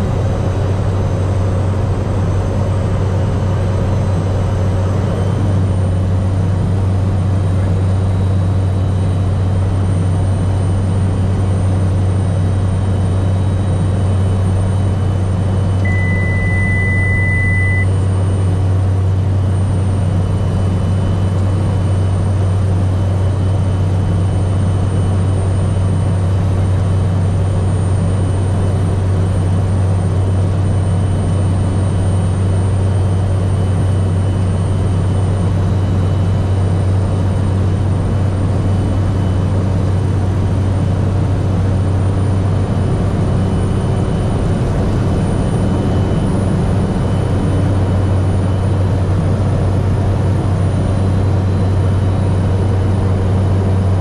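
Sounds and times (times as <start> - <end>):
turboprop engine drone: 0.0 - 54.0
steady high beep: 15.8 - 18.0.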